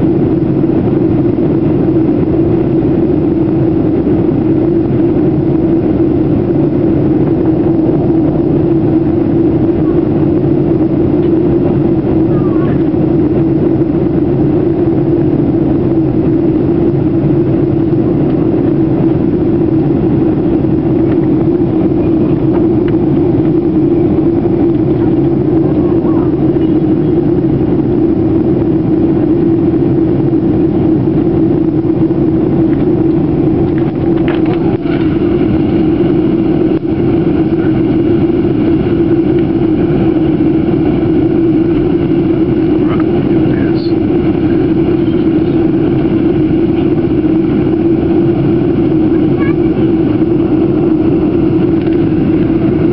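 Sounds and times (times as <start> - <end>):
aircraft engines droning: 0.0 - 52.9
rushing air: 0.0 - 52.9.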